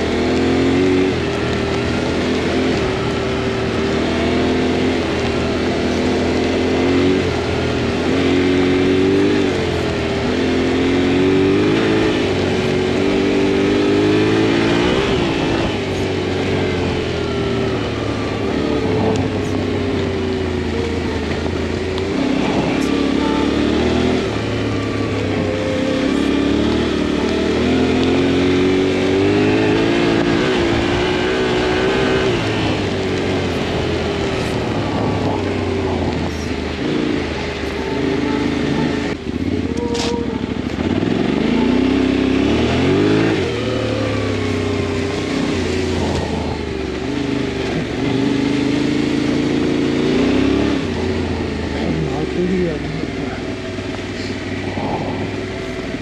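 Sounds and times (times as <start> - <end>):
motorcycle engine revving: 0.0 - 56.0
steady rushing noise: 11.3 - 56.0.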